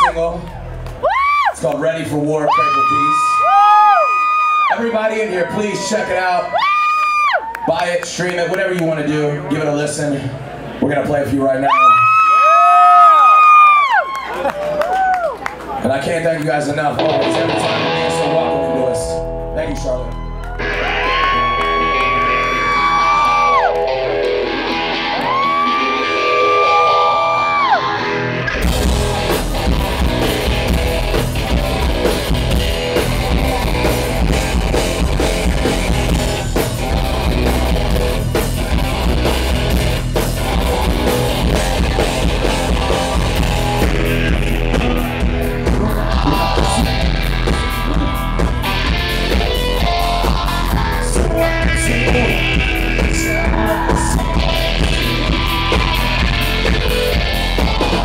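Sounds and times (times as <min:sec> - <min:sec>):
live rock band playing: 0:16.6 - 0:58.0
sliding long notes: 0:17.0 - 0:58.0.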